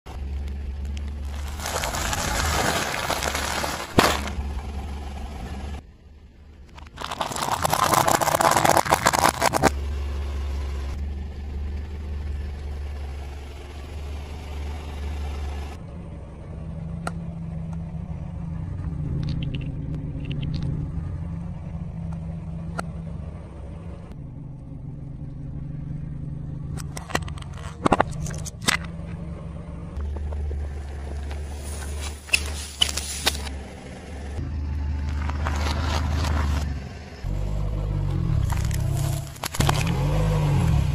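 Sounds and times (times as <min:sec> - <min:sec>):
car engine idling: 0:00.0 - 0:40.9
car tyre rolling on asphalt: 0:00.1 - 0:05.8, 0:06.6 - 0:40.9
noodle packs crunching under tyre: 0:01.0 - 0:04.5, 0:06.8 - 0:09.7, 0:35.0 - 0:36.7, 0:38.4 - 0:40.1
sharp cracks and pops: 0:06.7 - 0:09.7, 0:38.4 - 0:40.0.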